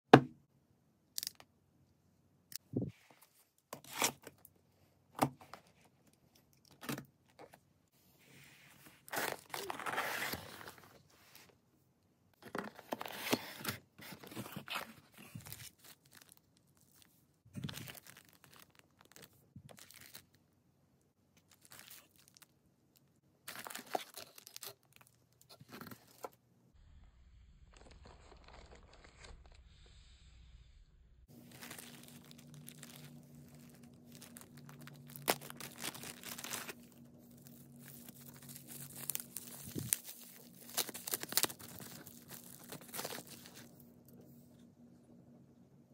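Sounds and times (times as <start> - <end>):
packaging crinkling and rustling: 9.0 - 11.0, 12.4 - 20.4, 21.4 - 22.5, 23.5 - 26.4, 27.7 - 29.6, 31.3 - 43.8
faint low hum: 26.0 - 45.9.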